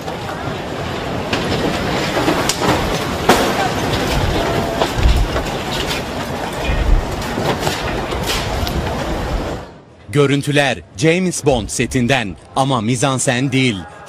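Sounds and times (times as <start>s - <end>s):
debris knocking and rattling: 1.2s - 8.9s.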